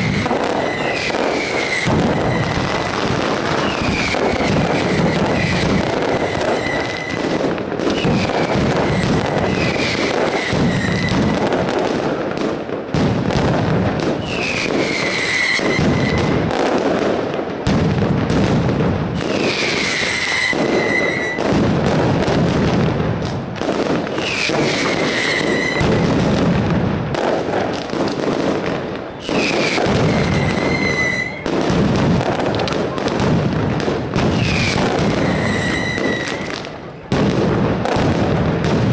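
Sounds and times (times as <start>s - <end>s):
firecrackers banging: 0.0s - 38.9s
falling whistle: 19.9s - 21.4s, 25.1s - 25.9s, 30.0s - 31.4s, 35.2s - 36.5s.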